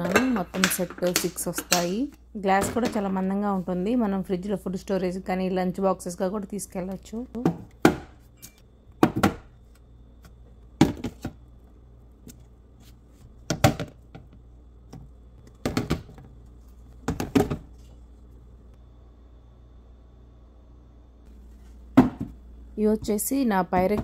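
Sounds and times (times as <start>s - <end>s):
glass containers knocking and clinking: 0.0s - 2.0s.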